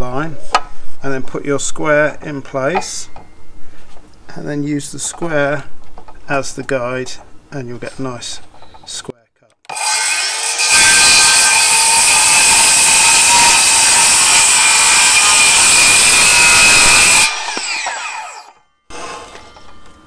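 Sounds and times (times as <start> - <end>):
circular saw cutting wood: 9.7 - 20.0.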